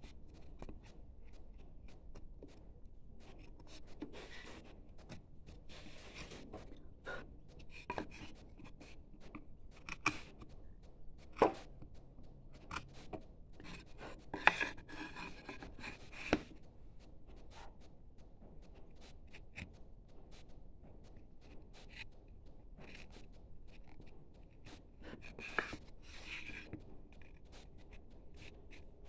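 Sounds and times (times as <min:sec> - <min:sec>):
chisel scraping wood: 0:03.2 - 0:10.5, 0:11.3 - 0:11.8, 0:12.5 - 0:16.6, 0:24.6 - 0:27.7.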